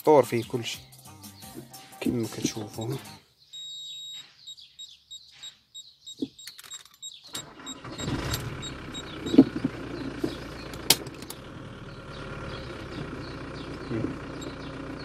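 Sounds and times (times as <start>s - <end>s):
parking sensor high beeps: 2.9s - 9.6s, 14.4s - 14.7s
car engine running: 7.3s - 15.0s.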